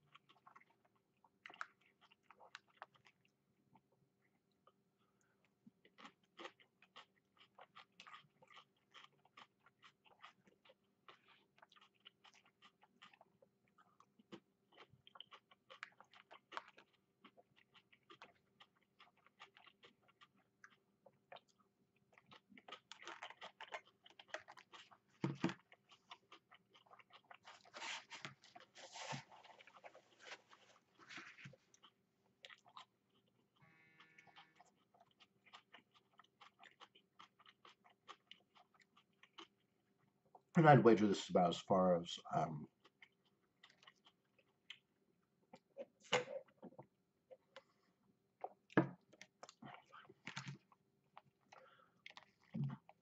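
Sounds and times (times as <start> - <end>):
person chewing and crunching: 0.0 - 40.5, 42.3 - 53.0.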